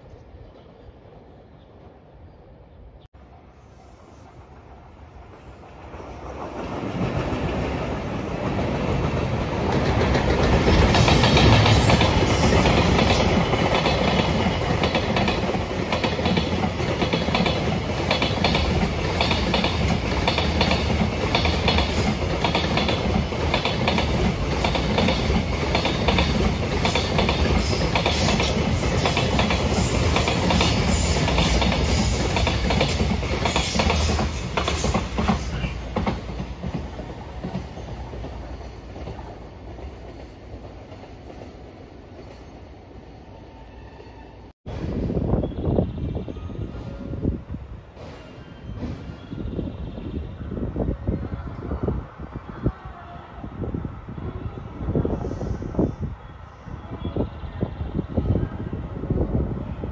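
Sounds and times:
train wheels clicking over rail joints: 8.5s - 41.5s.

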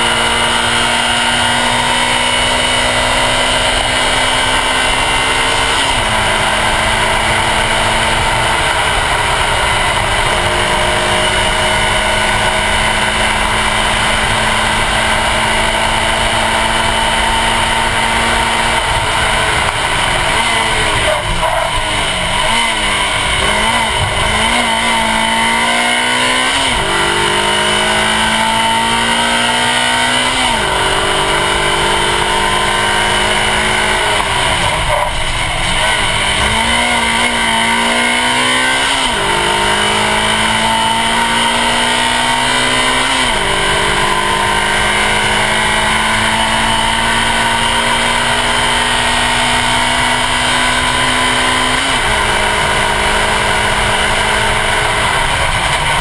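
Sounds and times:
heavy wind noise: 0.0s - 41.0s
car engine revving through gears: 0.0s - 56.0s
tyre noise: 15.9s - 29.1s.

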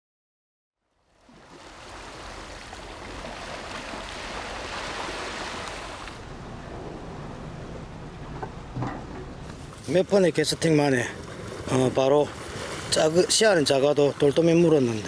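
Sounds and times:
seawater rushing: 1.2s - 15.0s
low steady hum: 6.2s - 9.8s.

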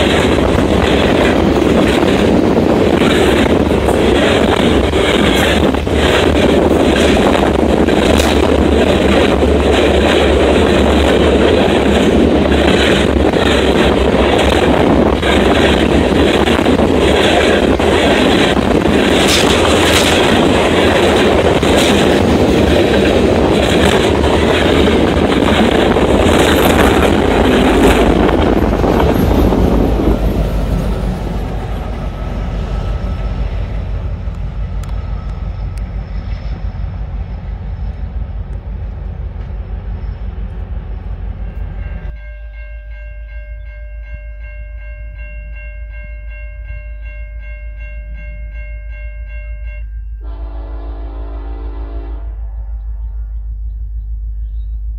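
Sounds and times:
freight train wheels clicking: 0.0s - 42.2s
distant locomotive horn: 50.2s - 54.5s.

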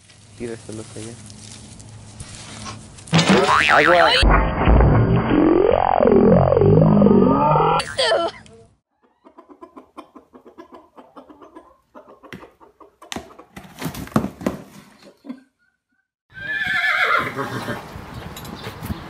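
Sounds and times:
rooster clucking: 9.0s - 13.6s.

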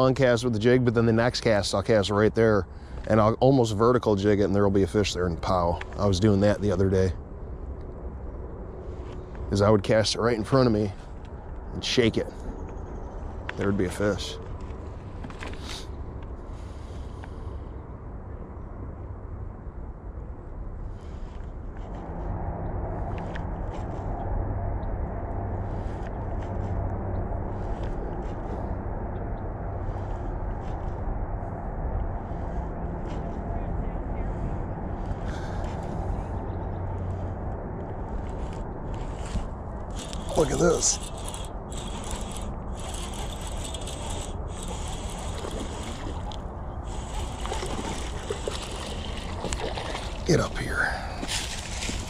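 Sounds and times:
low outdoor rumble: 0.0s - 52.0s
fish splashing at surface: 47.0s - 50.3s.

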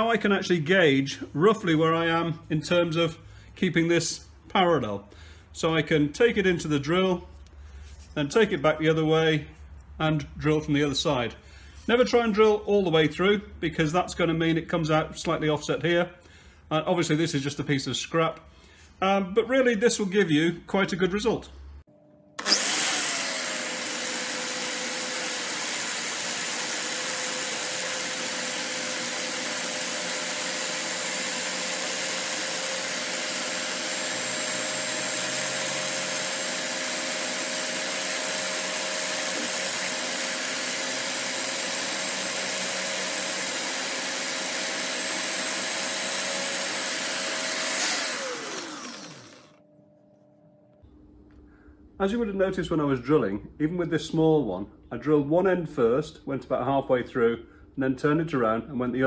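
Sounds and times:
cordless drill whining: 22.4s - 49.6s.

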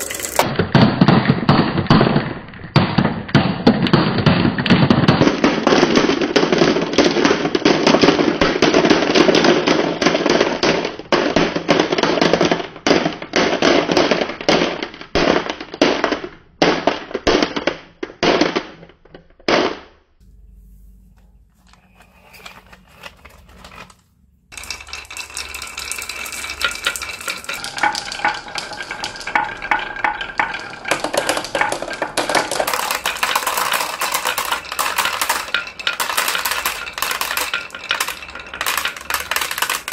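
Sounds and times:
glass marbles rattling into basket: 0.0s - 0.4s, 21.6s - 39.9s
marbles clicking along wooden track: 0.0s - 0.5s, 24.5s - 39.9s.

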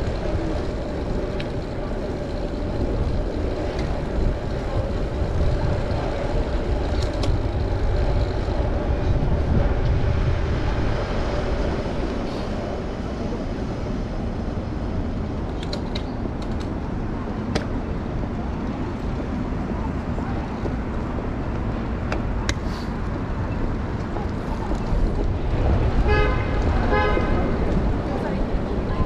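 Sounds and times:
light bicycle clicks: 0.0s - 8.6s, 15.5s - 16.8s, 21.5s - 25.4s
city traffic: 0.0s - 29.0s
wind rumble: 0.0s - 29.0s
horn-like tone: 26.0s - 27.4s.

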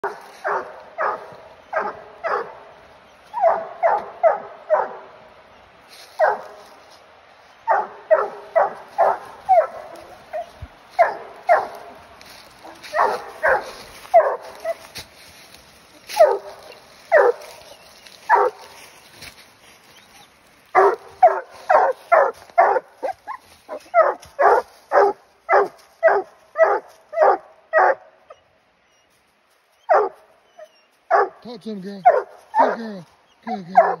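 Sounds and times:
dog barking: 0.0s - 2.7s, 3.3s - 5.1s, 6.2s - 6.6s, 7.7s - 14.9s, 16.1s - 18.8s, 20.7s - 28.1s, 29.9s - 31.4s, 32.0s - 34.0s.

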